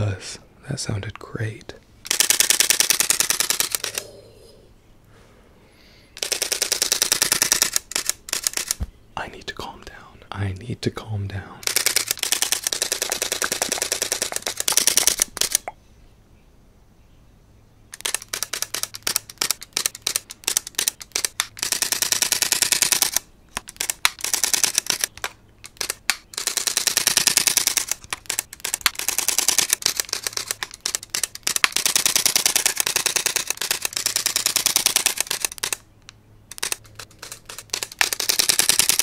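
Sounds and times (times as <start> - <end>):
camera shutter clicks: 2.1 - 4.0, 6.2 - 8.9, 11.6 - 15.7, 17.9 - 39.0.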